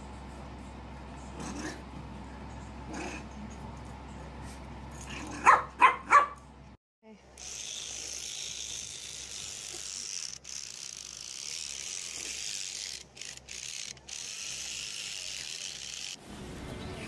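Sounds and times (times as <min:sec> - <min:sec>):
electric toothbrush buzzing: 0:07.4 - 0:16.2.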